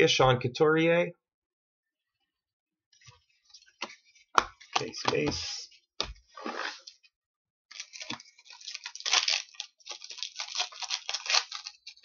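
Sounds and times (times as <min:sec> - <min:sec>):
cards rustling and clicking: 0:03.6 - 0:07.0, 0:07.7 - 0:12.0.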